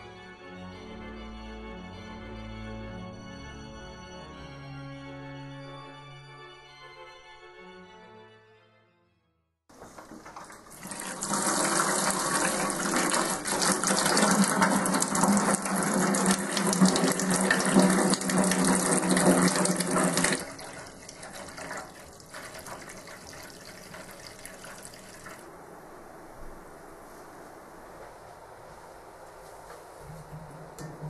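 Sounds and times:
water splashing into metal tub: 9.8 - 25.4.

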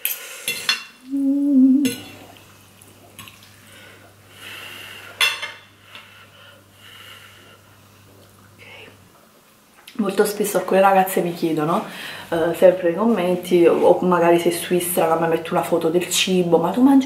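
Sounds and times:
short hummed voice: 1.0 - 2.3
cutlery clinking on a plate: 5.2 - 5.7.

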